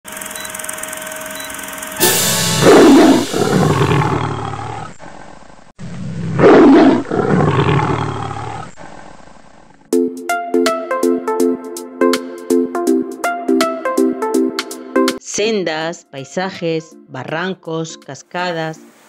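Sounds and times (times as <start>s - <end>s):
lion roar: 2.6s - 10.0s.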